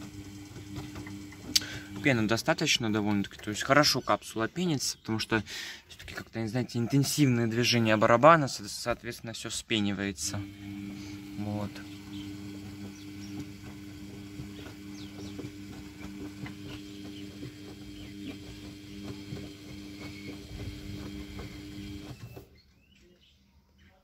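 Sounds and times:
washing machine motor hum: 0:00.0 - 0:04.3, 0:09.6 - 0:22.5.

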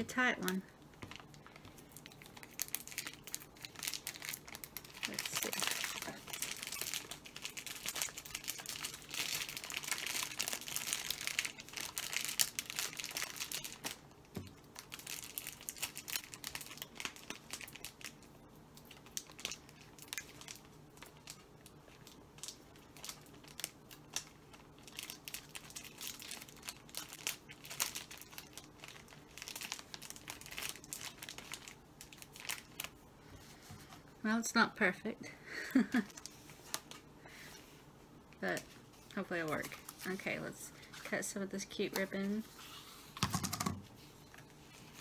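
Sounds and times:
plastic bag crinkling: 0:00.1 - 0:33.7.

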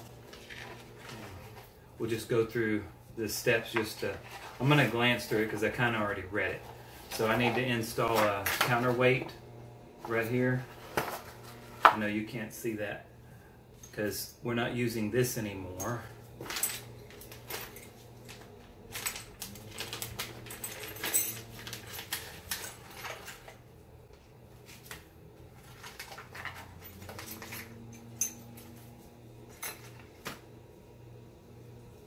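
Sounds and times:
faint hum: 0:00.0 - 0:32.0
metal parts clinking: 0:15.8 - 0:23.6, 0:25.8 - 0:28.8
plastic bags rustling: 0:16.3 - 0:23.6, 0:24.5 - 0:28.0.

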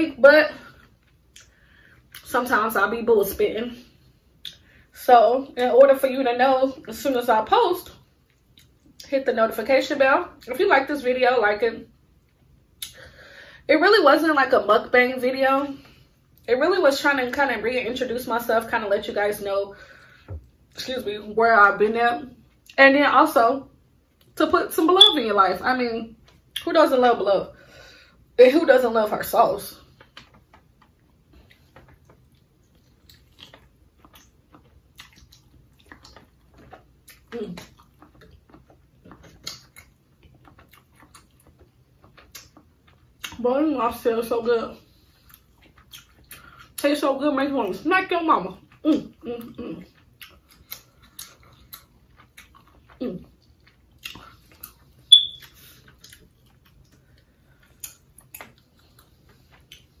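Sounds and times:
person chewing food: 0:08.2 - 0:09.0, 0:29.9 - 0:43.4, 0:44.9 - 0:46.8, 0:49.8 - 1:00.0
mouth clicks and smacks: 0:30.0 - 0:43.4, 0:49.9 - 1:00.0.

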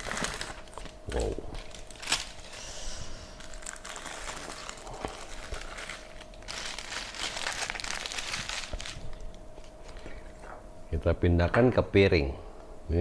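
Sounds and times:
aluminium foil crinkling: 0:00.0 - 0:10.3.

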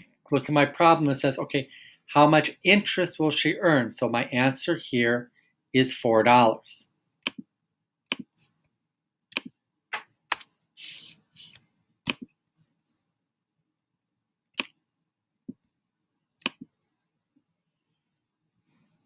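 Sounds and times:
mouse and keyboard clicking: 0:08.1 - 0:08.3, 0:09.3 - 0:09.5.

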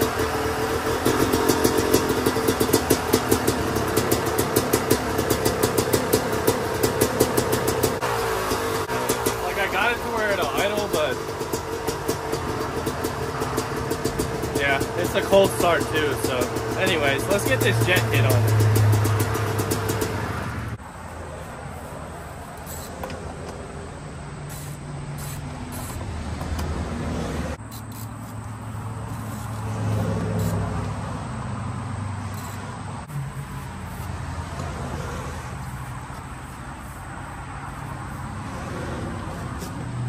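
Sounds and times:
two-stroke engine idling: 0:00.0 - 0:20.4, 0:32.3 - 0:32.6.

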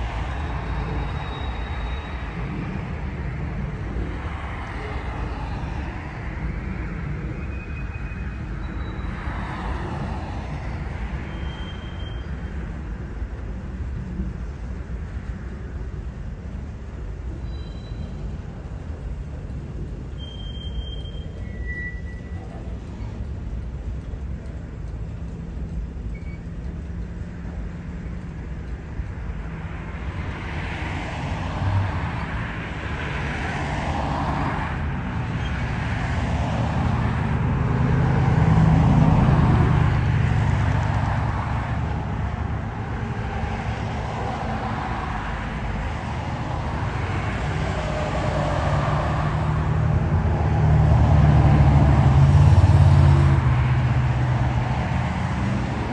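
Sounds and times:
freight train cars rumbling: 0:00.0 - 0:55.9
high train squeaks: 0:00.1 - 0:03.0, 0:07.3 - 0:09.6, 0:11.1 - 0:12.7, 0:17.3 - 0:18.8, 0:20.0 - 0:23.3, 0:26.0 - 0:26.7
car approaching on road: 0:18.2 - 0:55.9.

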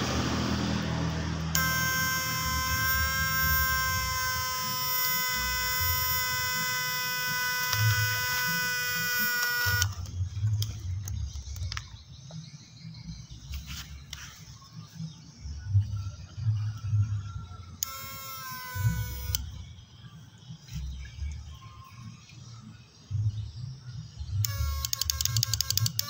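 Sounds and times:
high-pitched electric buzzing: 0:01.5 - 0:10.1, 0:17.8 - 0:19.6, 0:24.4 - 0:26.0.

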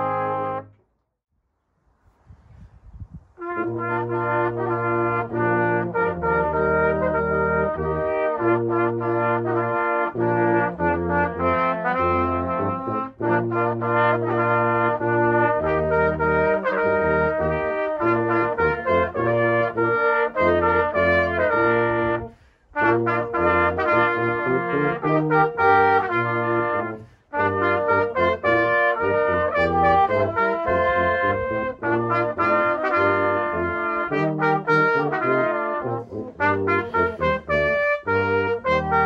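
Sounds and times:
brass band playing chords: 0:00.0 - 0:00.7, 0:03.4 - 0:39.0.

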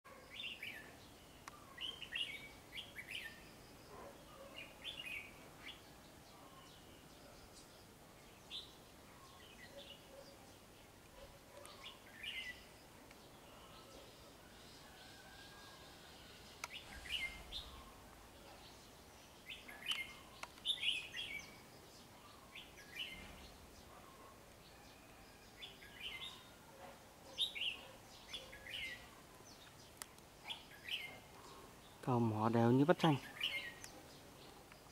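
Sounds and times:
bulbul singing: 0:15.6 - 0:24.4, 0:27.3 - 0:34.9.

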